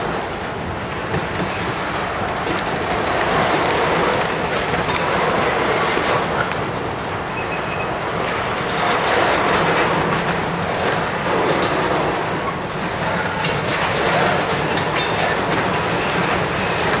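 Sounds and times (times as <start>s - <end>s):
steel wheels on rails: 0.0s - 17.0s.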